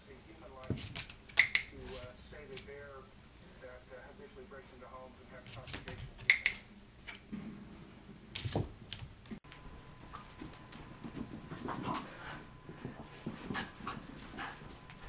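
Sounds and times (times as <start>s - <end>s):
dog panting: 10.9s - 15.0s.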